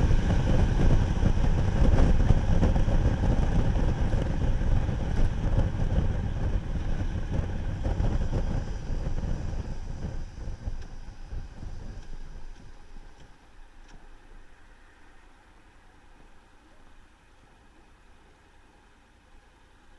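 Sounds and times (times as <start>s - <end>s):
wind buffeting microphone: 0.0s - 13.4s
motorcycle engine rumble: 0.0s - 14.1s.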